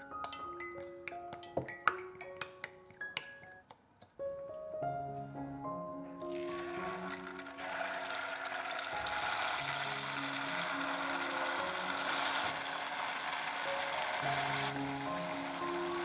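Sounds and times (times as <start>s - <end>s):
soft background music: 0.0s - 16.0s
chicken deep-frying in oil: 6.2s - 16.0s.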